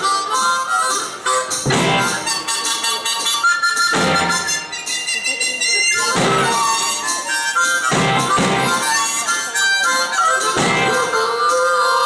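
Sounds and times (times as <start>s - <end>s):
amplified blues harmonica: 0.0s - 12.0s
drums: 0.0s - 12.0s
electric guitar: 1.7s - 2.3s.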